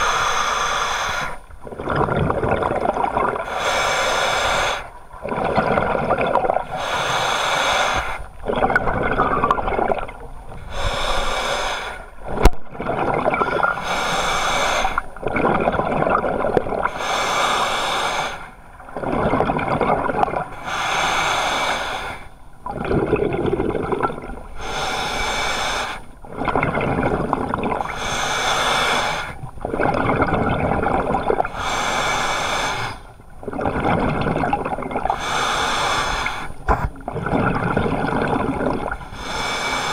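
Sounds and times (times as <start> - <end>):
scuba regulator breathing: 0.0 - 1.4, 3.4 - 5.0, 6.7 - 8.4, 10.6 - 12.4, 13.4 - 15.2, 16.9 - 18.6, 20.5 - 22.4, 24.5 - 26.1, 27.8 - 29.4, 31.5 - 33.1, 35.1 - 36.9, 38.9 - 39.9.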